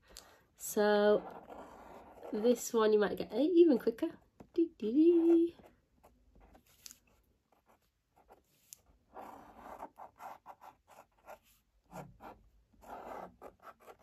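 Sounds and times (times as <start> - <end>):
marker pen scratching on paper: 0.8 - 2.7, 5.0 - 14.0.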